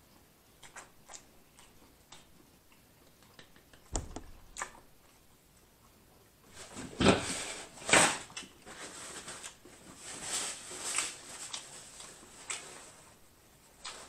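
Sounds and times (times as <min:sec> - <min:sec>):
soft chewing: 0:00.0 - 0:03.9, 0:04.5 - 0:06.6, 0:10.8 - 0:14.0.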